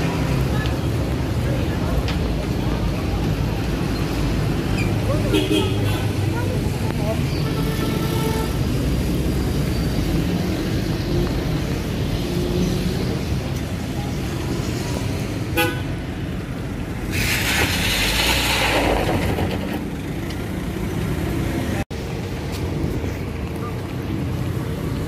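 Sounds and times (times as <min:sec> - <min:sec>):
street traffic rumble: 0:00.0 - 0:25.0
rushing hiss: 0:17.0 - 0:19.0.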